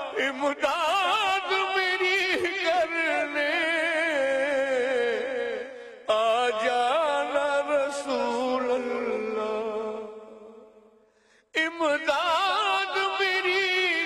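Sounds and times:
person singing devotional song: 0.0 - 14.0.

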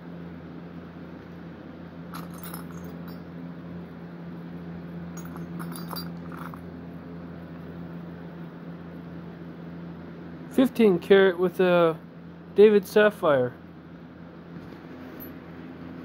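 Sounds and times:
steady low hum: 0.0 - 16.0
metal rings clinking: 2.1 - 3.3, 5.2 - 6.7, 15.1 - 15.4.

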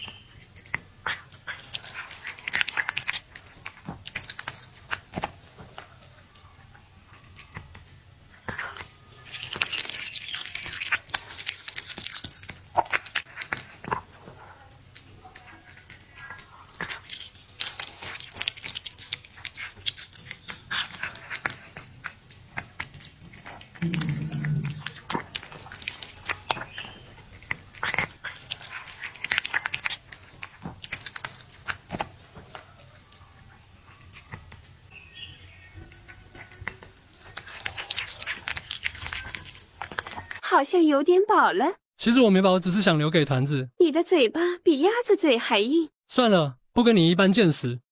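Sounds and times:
cat chewing meat: 0.0 - 40.4.

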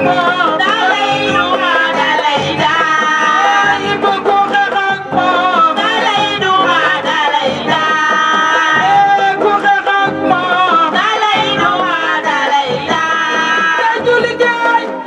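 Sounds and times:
person singing with music: 0.0 - 15.0.

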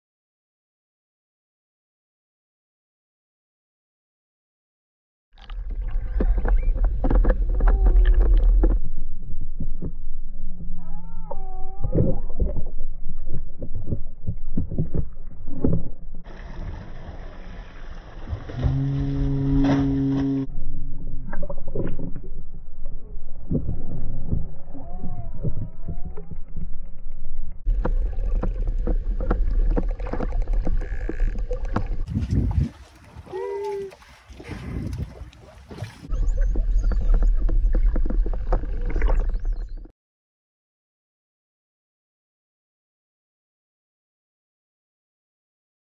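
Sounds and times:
whale clicks: 5.4 - 8.9, 21.2 - 39.9
underwater water rumble: 5.4 - 39.9
wind and sea hiss: 16.3 - 18.5
low water rush: 16.3 - 20.5, 27.7 - 36.2
low knocks and thumps: 27.6 - 32.8.

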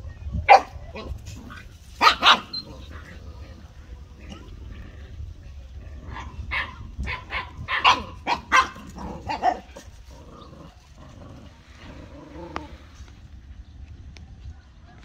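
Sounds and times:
dogs barking: 0.5 - 3.1, 6.0 - 12.8.

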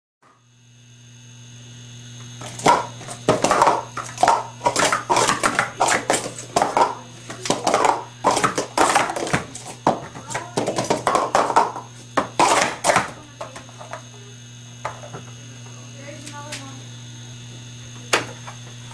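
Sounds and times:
plastic cups clattering: 2.4 - 14.0.

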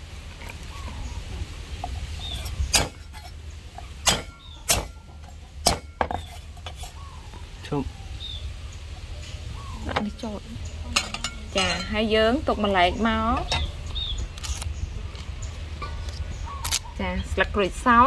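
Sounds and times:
low steady hum: 0.0 - 18.0
utensils knocking against pot: 4.0 - 6.8, 11.0 - 12.0.

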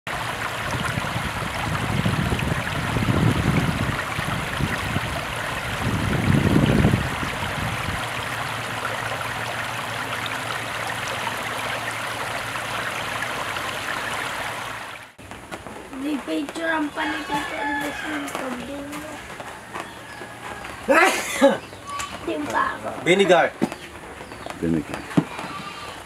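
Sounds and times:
water rushing over rocks: 0.1 - 19.2.

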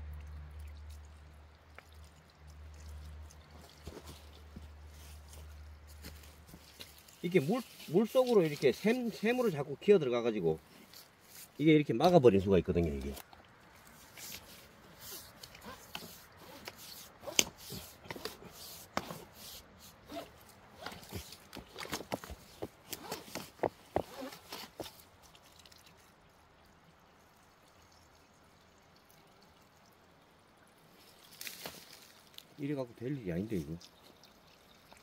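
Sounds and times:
water dripping and trickling: 0.0 - 17.2, 24.6 - 35.0
hose knocking and scraping on rocks: 3.4 - 9.6, 10.6 - 11.6, 12.8 - 25.0.

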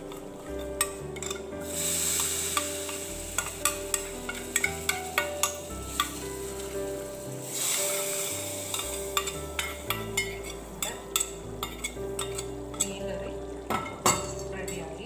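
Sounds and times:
hot oil sizzling in curry: 0.0 - 15.0
metal spoon clinking on pans: 0.1 - 1.5, 2.2 - 6.7, 8.6 - 13.0.

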